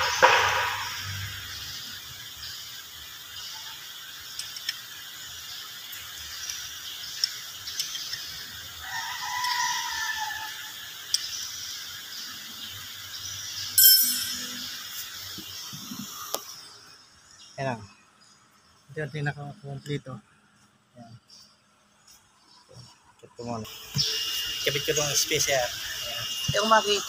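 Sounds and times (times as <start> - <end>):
steady workshop hiss: 0.0 - 22.9, 23.5 - 27.0
steady tone: 13.8 - 14.8.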